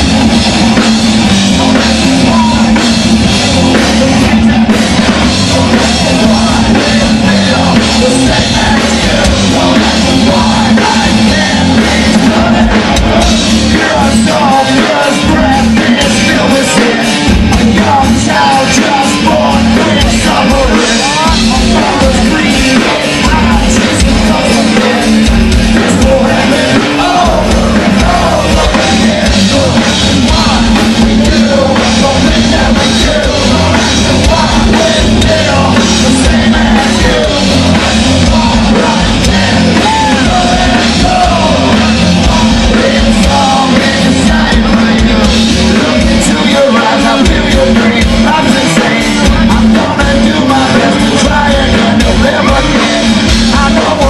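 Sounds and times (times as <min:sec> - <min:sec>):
electric guitar: 0:00.0 - 0:54.0
live rock band playing: 0:00.0 - 0:54.0
person singing and yelling: 0:00.0 - 0:54.0.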